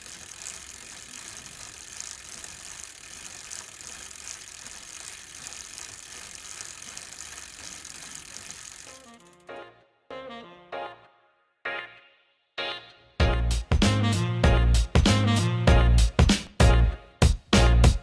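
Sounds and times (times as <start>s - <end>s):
bicycle freewheel ratcheting: 0.0s - 9.6s.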